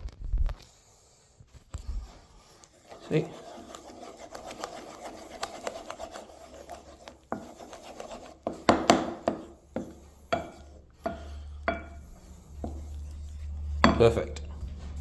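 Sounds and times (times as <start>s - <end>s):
spoon scraping in frying pan: 2.7s - 14.2s
spoon knocking on pan: 8.4s - 12.0s, 13.8s - 14.1s.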